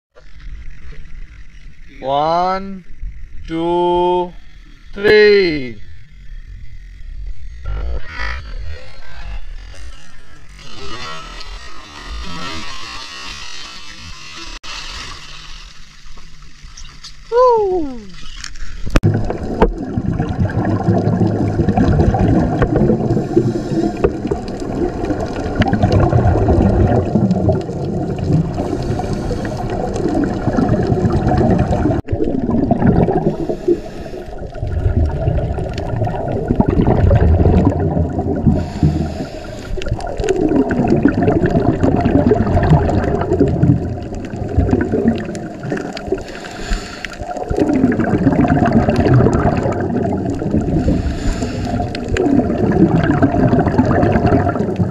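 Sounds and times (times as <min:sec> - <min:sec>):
underwater bubbles gurgling: 0:18.8 - 0:54.9.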